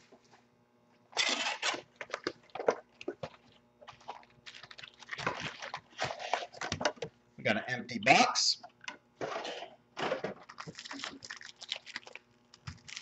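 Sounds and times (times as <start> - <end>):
plastic shrink-wrap crinkling and tearing: 1.2 - 2.3, 3.9 - 6.6, 10.4 - 13.0.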